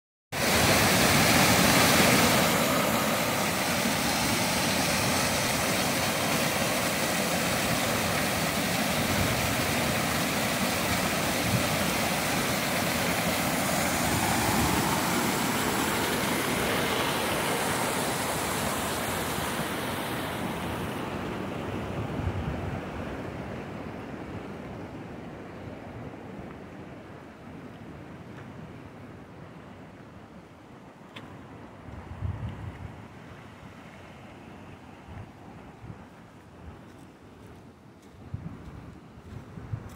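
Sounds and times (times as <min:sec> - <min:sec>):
waterfall cascading over rocks: 0:00.4 - 0:20.8.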